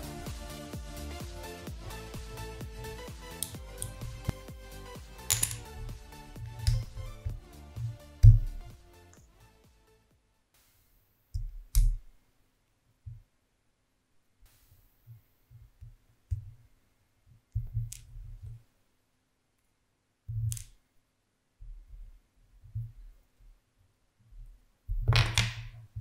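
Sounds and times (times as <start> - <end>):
wooden parts knocking: 5.3 - 5.8.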